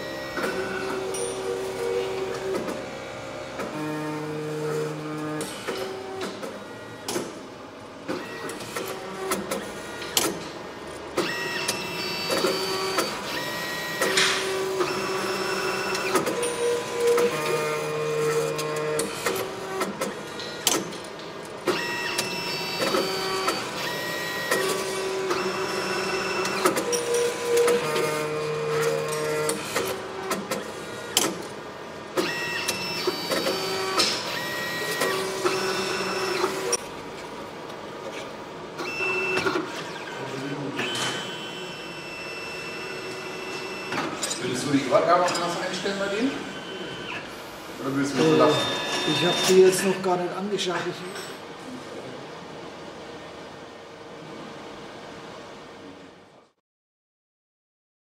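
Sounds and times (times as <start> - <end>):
machine motors whining: 0.0 - 50.2
machine clicks: 26.3 - 31.6.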